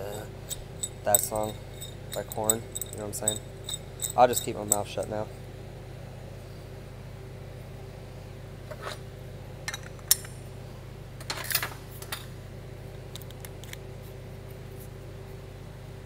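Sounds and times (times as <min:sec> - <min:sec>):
metal clinks and clicks: 0:00.5 - 0:05.0.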